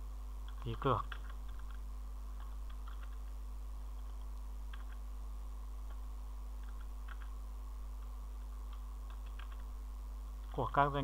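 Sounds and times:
low electrical hum: 0.0s - 11.0s
keyboard keystrokes: 2.4s - 3.2s, 4.0s - 5.0s, 6.6s - 7.3s, 8.7s - 9.7s.

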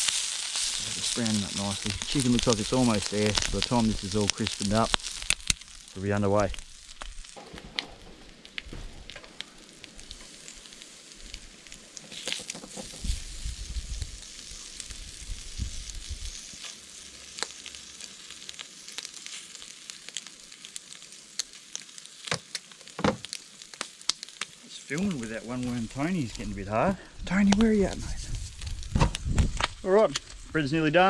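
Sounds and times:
meat sizzling on grill: 0.0s - 31.0s
low rumble: 25.4s - 29.8s.

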